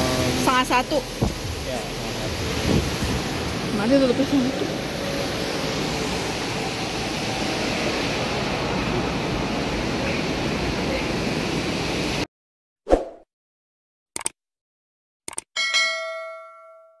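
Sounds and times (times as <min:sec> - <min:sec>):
indoor waterfall rushing: 0:00.0 - 0:12.2.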